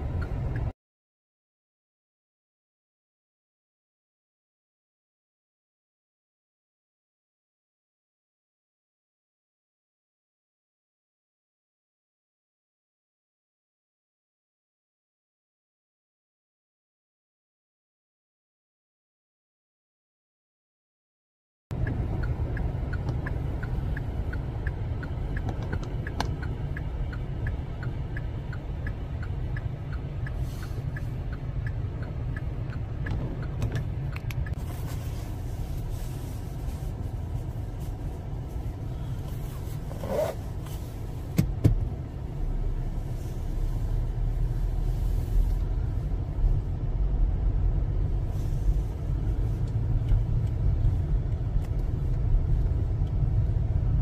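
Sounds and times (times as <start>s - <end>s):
car engine and tyre rumble: 0.0s - 0.8s, 21.7s - 54.0s
regular ticking: 21.7s - 34.6s.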